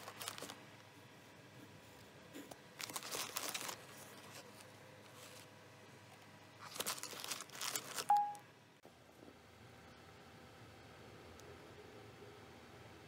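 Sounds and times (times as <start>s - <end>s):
packaging crinkling and rustling: 0.0s - 0.6s, 2.7s - 5.6s, 6.6s - 8.2s
brief single tone: 8.1s - 8.5s.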